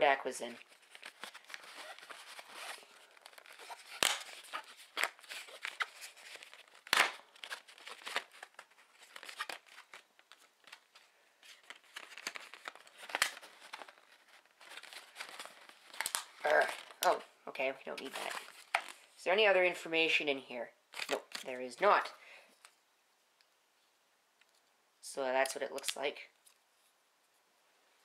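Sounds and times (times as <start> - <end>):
blister pack crinkling and tearing: 0.6 - 17.2, 18.0 - 19.1, 20.9 - 21.6
plastic cracking: 0.6 - 17.2.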